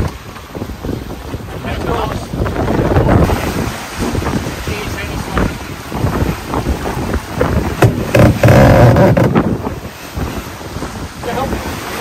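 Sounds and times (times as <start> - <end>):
water rushing past boat: 0.0 - 12.0
wind buffeting microphone: 0.0 - 12.0
knocks: 7.8 - 9.4.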